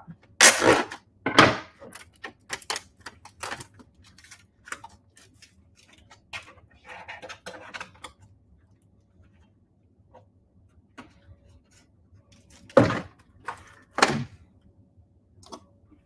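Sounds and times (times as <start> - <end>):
packet wrapper crinkling: 1.8 - 6.2.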